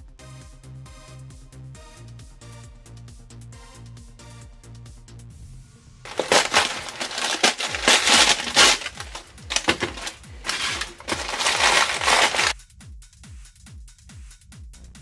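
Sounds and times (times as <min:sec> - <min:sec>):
stiff paper crunching: 0:06.1 - 0:12.6.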